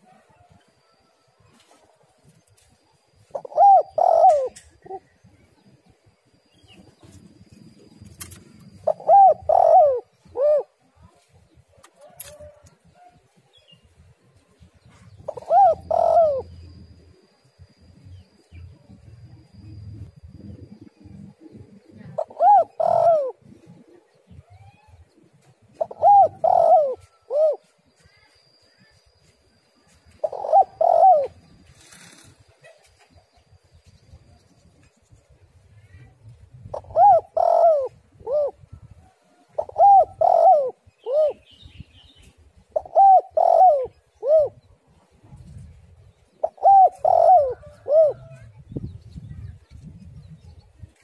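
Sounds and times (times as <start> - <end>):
dove cooing: 3.3 - 5.2, 8.3 - 10.8, 14.9 - 16.8, 21.3 - 24.4, 25.7 - 27.7, 30.1 - 33.0, 36.3 - 41.5, 42.6 - 44.7, 46.4 - 48.6.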